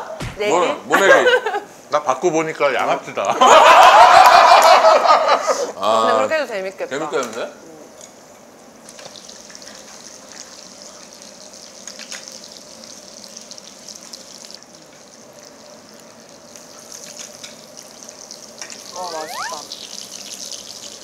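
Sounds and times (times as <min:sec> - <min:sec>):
intestines sizzling in a pan: 0:08.6 - 0:21.0.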